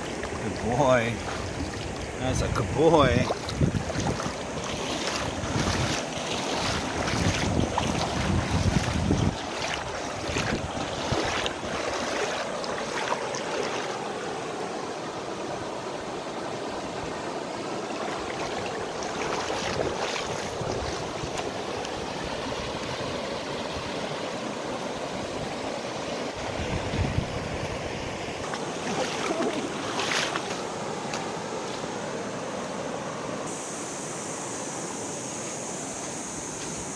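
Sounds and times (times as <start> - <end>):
wind gust on microphone: 0.0 - 12.3, 19.3 - 21.6, 26.4 - 28.2
river flowing over stones: 0.0 - 36.9.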